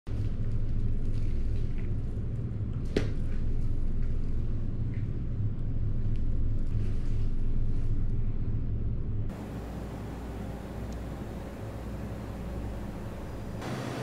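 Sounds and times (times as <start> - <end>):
steady low hum: 0.1 - 14.0.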